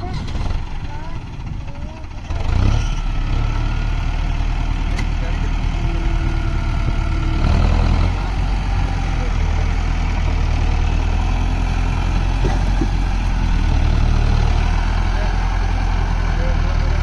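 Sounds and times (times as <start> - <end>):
tractor diesel engine droning: 0.0 - 17.0.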